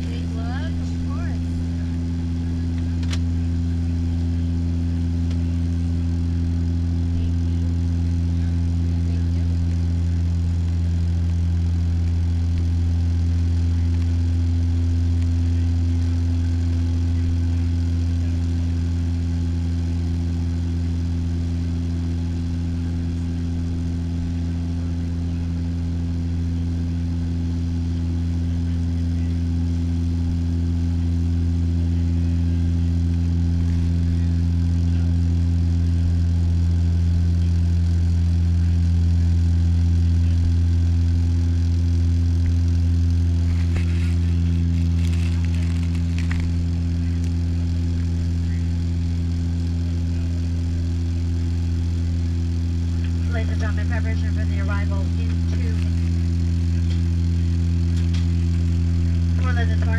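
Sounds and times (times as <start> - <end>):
propeller plane cabin drone: 0.0 - 59.9.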